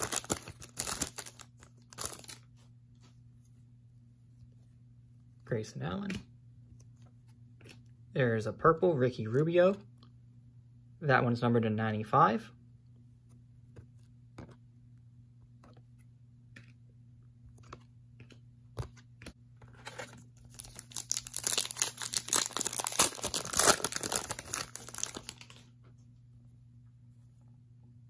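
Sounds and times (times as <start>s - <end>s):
plastic packaging crinkling tearing: 0.0s - 2.5s, 19.8s - 25.7s.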